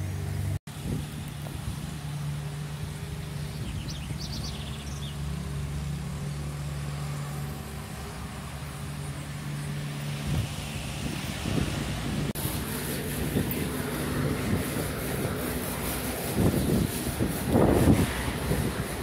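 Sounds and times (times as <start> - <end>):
car engine hum: 0.0 - 19.0.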